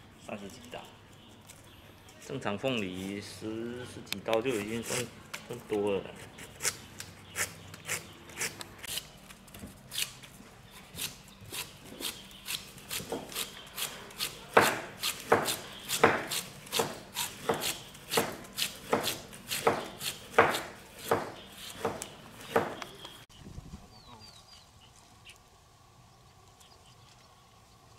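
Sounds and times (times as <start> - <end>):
knife slicing pineapple rind: 6.1 - 9.2, 10.8 - 23.0.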